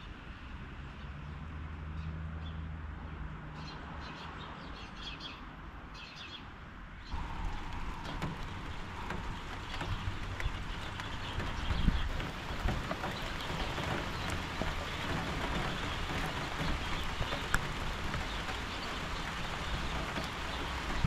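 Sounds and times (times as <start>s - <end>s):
small birds chirping: 3.6s - 21.0s
rain drops falling: 7.1s - 21.0s.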